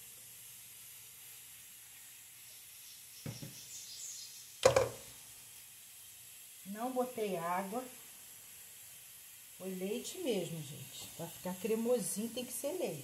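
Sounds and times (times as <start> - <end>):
faint steady hiss: 0.0 - 13.0
plastic funnel knocking: 4.6 - 5.0.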